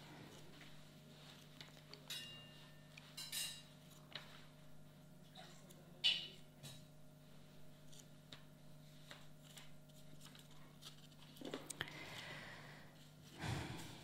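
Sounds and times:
steady low hum: 0:00.0 - 0:14.0
book pages rustling: 0:07.8 - 0:11.8.

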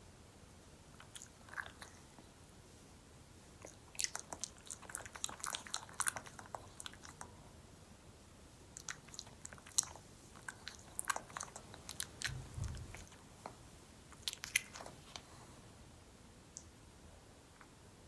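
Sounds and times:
chewing mouth sounds: 0:01.0 - 0:02.1, 0:03.6 - 0:07.4, 0:08.7 - 0:13.5, 0:14.1 - 0:15.0.

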